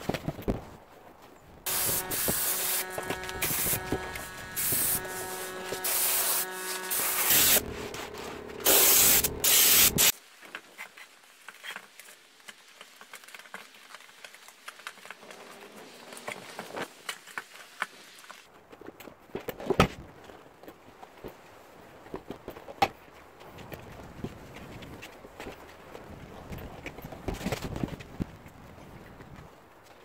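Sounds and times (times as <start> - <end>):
aerosol spray can hissing: 1.7 - 10.1.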